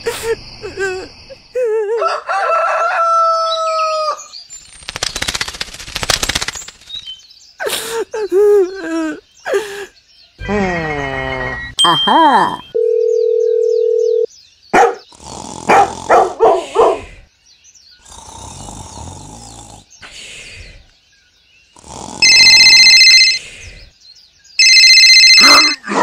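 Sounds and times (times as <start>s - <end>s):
steady beep: 11.5s - 12.8s, 22.2s - 23.4s, 24.6s - 25.8s
dog barking: 14.7s - 15.1s, 15.7s - 17.1s
electronic ringing: 22.2s - 23.4s, 24.6s - 25.9s.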